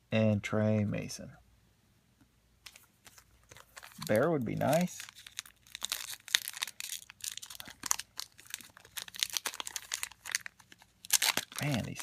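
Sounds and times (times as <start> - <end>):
plastic wrapper tearing and crinkling: 3.0 - 12.0.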